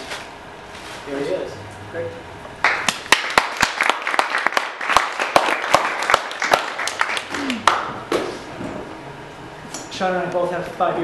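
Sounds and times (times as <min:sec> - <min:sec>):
small audience clapping: 0:02.6 - 0:08.4.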